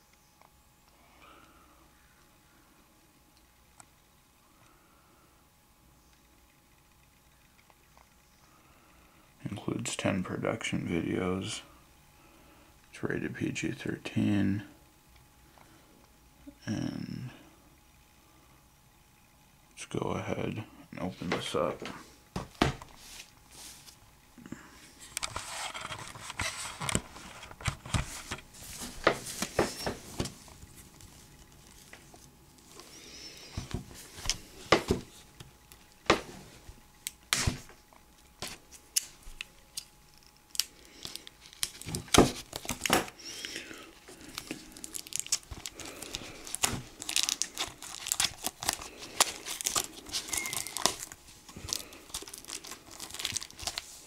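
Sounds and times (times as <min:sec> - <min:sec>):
shrink-wrap crinkling: 0:24.9 - 0:54.0.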